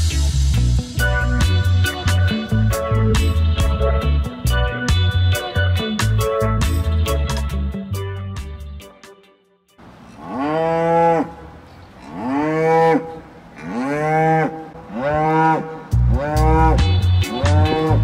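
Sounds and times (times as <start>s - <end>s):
music: 0.0s - 9.8s, 15.9s - 18.0s
cow mooing: 10.1s - 18.0s.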